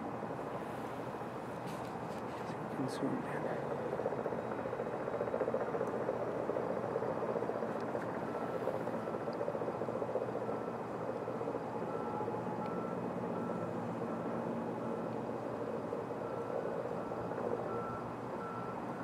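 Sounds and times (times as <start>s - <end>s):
reversing alarm beeping: 10.3s - 15.3s, 16.1s - 19.0s.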